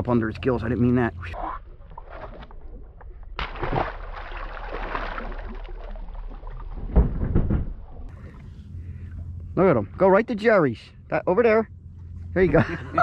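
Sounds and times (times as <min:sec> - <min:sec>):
fish splashing in water: 0:01.7 - 0:07.0
low knocks against boat: 0:06.8 - 0:08.4.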